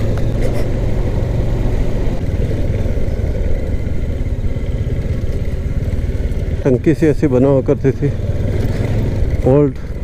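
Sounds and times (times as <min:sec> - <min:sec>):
motorcycle engine rumbling: 0:00.0 - 0:10.0.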